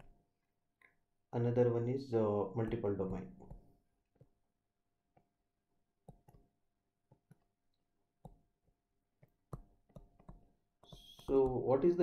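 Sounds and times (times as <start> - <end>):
stylus tapping on tablet screen: 0.0 - 0.4, 2.6 - 4.5, 5.1 - 12.0.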